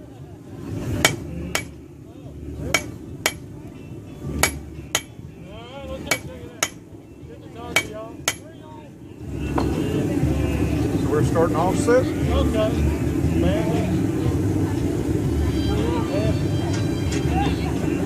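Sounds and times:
hammer clanging on anvil: 1.0s - 1.8s, 2.7s - 3.5s, 4.4s - 5.2s, 6.1s - 6.8s, 7.7s - 8.5s.

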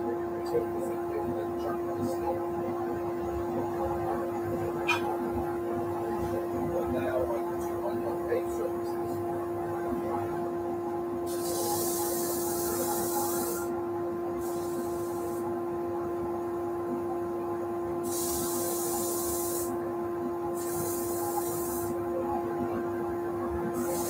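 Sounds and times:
wood hissing on sanding drum: 11.3s - 13.7s, 14.4s - 15.4s, 18.1s - 19.8s, 20.6s - 22.0s, 23.8s - 24.0s.

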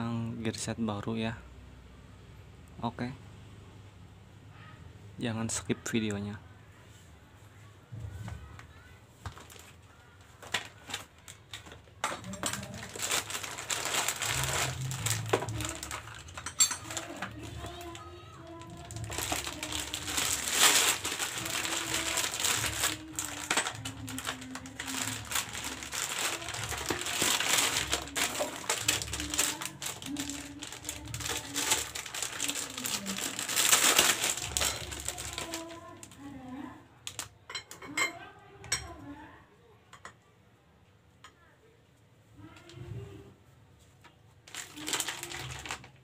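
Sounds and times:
plastic packaging crinkling: 9.2s - 37.3s, 44.4s - 46.0s.

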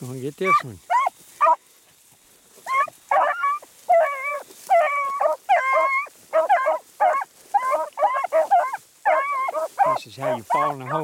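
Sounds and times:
dogs baying: 0.4s - 1.6s, 2.6s - 11.0s.

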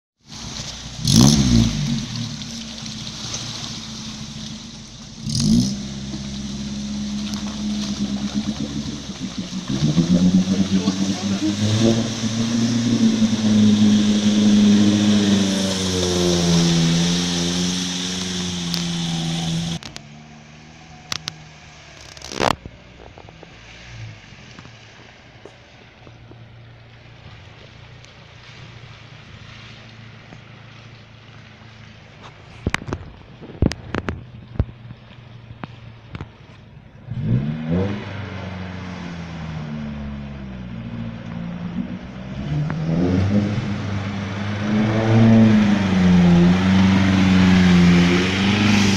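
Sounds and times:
water splashing: 0.2s - 48.9s
faint low engine hum: 0.3s - 16.1s, 18.4s - 37.3s
car engine running hard: 0.3s - 48.9s.

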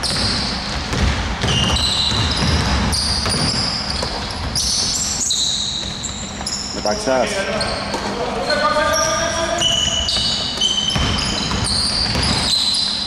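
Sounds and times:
basketball dribbling thuds: 0.0s - 6.8s, 9.5s - 12.8s
sneakers squeaking on court: 0.0s - 13.0s.

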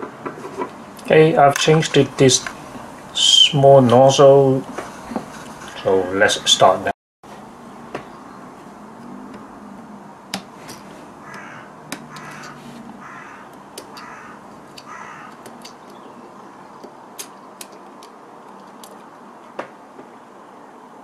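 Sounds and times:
harsh cawing call: 11.2s - 15.4s.

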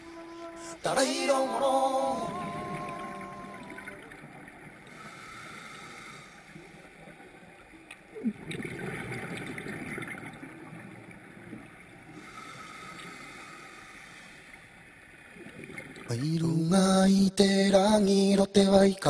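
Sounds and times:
low steady hiss: 0.0s - 19.0s
underwater bubbles gurgling: 2.2s - 5.6s, 6.5s - 12.3s.

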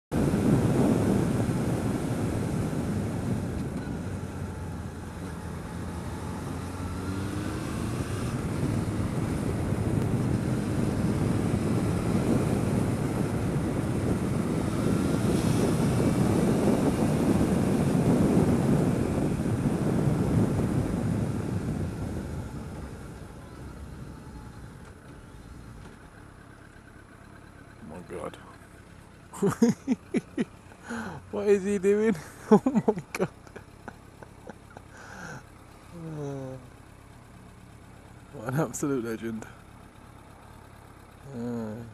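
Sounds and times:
wind buffeting microphone: 0.2s - 4.9s, 7.8s - 24.1s
motorcycle engine running: 0.2s - 25.4s.

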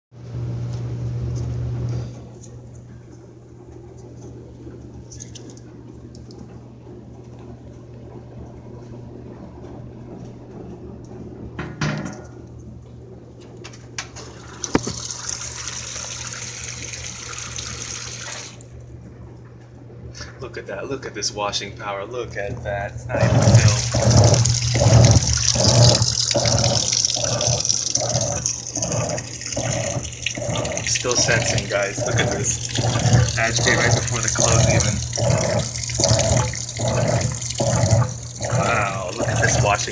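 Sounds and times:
washing machine hum: 0.1s - 39.9s
water spraying into tub: 14.2s - 18.6s, 23.1s - 39.9s.

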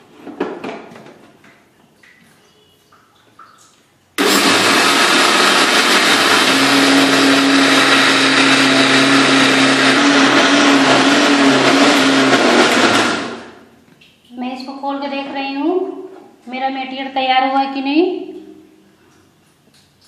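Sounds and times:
mixer grinder running: 4.2s - 13.6s.

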